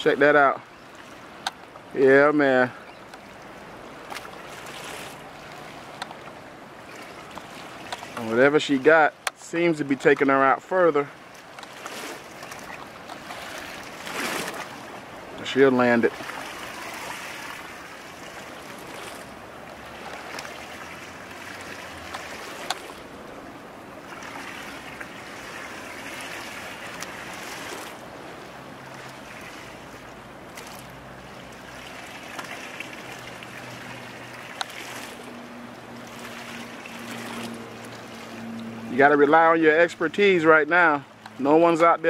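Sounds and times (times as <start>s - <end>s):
small waves lapping: 0.0s - 42.0s.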